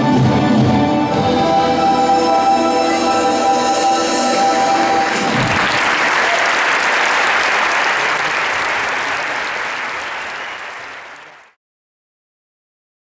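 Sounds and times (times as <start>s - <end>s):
large audience applauding: 4.9s - 11.6s.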